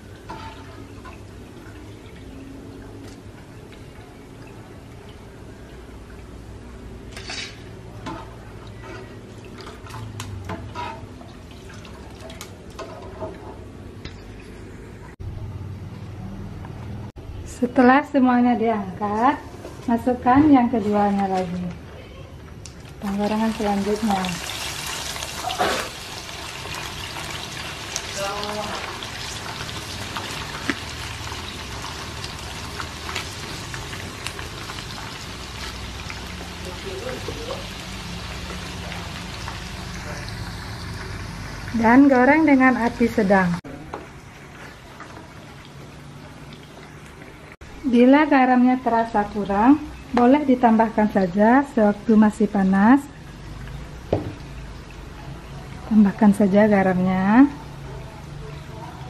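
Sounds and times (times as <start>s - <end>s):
nuts deep-frying in hot oil: 0.0s - 2.9s, 22.9s - 46.8s, 47.6s - 59.0s
metal spatula scraping and clinking: 7.1s - 9.2s, 10.5s - 11.1s
oil crackling and popping: 22.6s - 41.8s.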